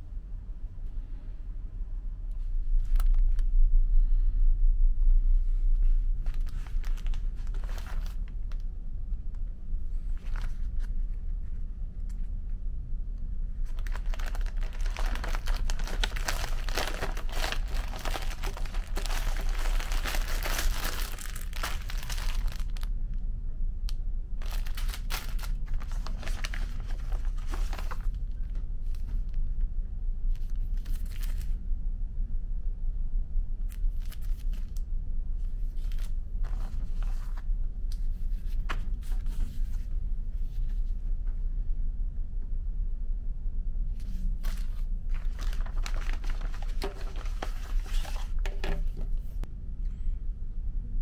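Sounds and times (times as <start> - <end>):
plastic film crinkling: 6.2 - 8.6, 13.6 - 22.9, 24.4 - 29.3, 44.4 - 49.2.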